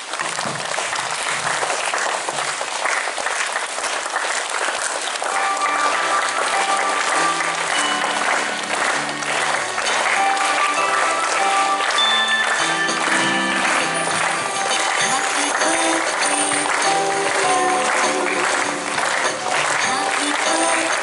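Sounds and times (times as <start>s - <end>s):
children clapping: 0.0s - 21.0s
music from loudspeaker: 5.4s - 21.0s.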